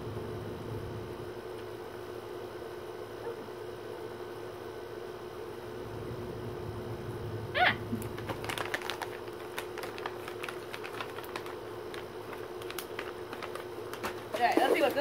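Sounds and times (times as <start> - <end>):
steady hum: 0.0 - 15.0
plastic snack bag crinkling: 7.9 - 15.0.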